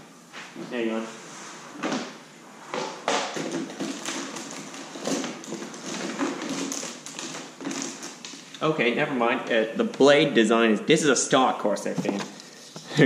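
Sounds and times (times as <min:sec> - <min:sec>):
rustling: 0:02.6 - 0:08.6
knocks and clatter of items: 0:02.7 - 0:08.5, 0:11.9 - 0:12.4.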